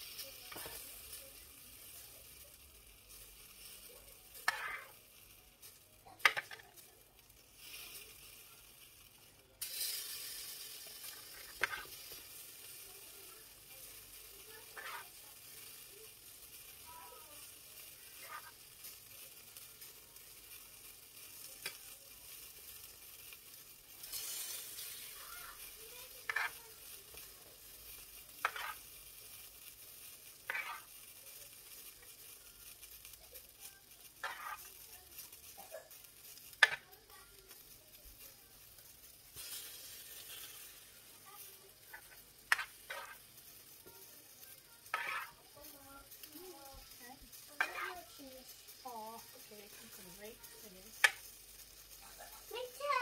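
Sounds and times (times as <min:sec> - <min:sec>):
spoon scraping frying pan: 0:00.0 - 0:52.5
spoon tapping pan: 0:00.1 - 0:01.2, 0:03.5 - 0:05.0, 0:05.6 - 0:06.7, 0:09.6 - 0:12.8, 0:13.8 - 0:15.9, 0:16.5 - 0:27.3, 0:27.9 - 0:37.7, 0:41.4 - 0:52.0.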